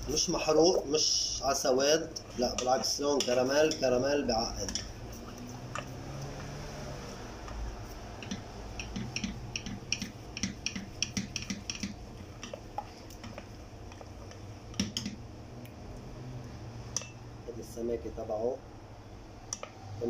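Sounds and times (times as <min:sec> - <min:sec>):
spoon stirring thick sauce: 0:00.1 - 0:15.3
spoon knocking against pot: 0:08.2 - 0:12.6, 0:14.8 - 0:15.2.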